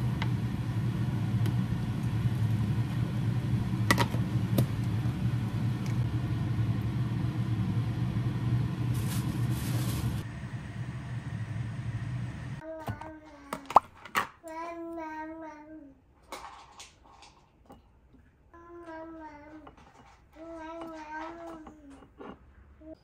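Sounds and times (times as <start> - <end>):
low mechanical hum: 0.0 - 16.7.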